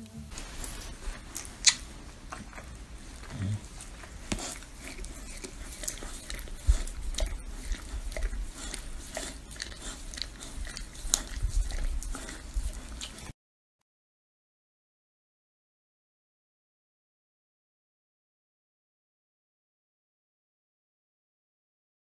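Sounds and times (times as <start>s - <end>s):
dog licking wet slurps: 0.6s - 13.3s.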